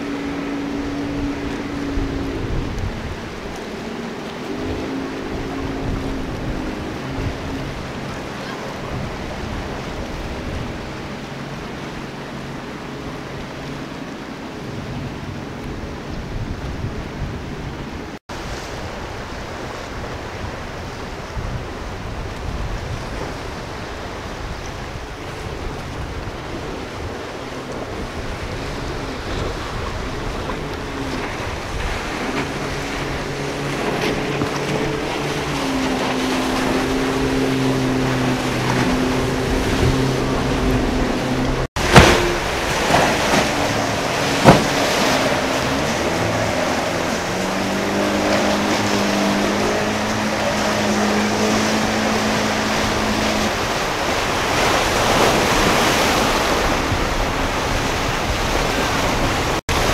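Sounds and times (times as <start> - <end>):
motorboat engine running: 0.0 - 59.9
surf: 0.0 - 59.9
wind: 0.0 - 59.9
hull slamming on waves: 14.6 - 59.9.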